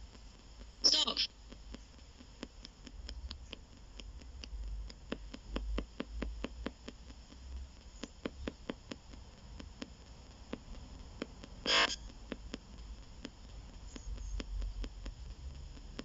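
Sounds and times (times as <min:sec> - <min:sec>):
faint radio static: 0:00.0 - 0:04.0, 0:11.4 - 0:14.5
rapid radio sweep clicks: 0:00.0 - 0:16.0.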